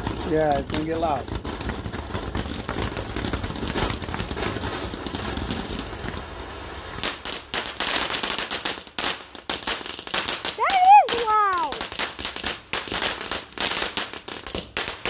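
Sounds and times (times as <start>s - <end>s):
firework fountain hissing and crackling: 0.0s - 15.0s.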